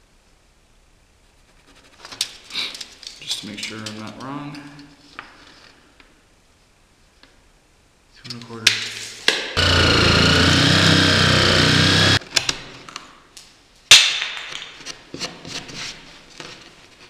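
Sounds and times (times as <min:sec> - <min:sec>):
jigsaw cutting plywood: 0:09.6 - 0:12.2.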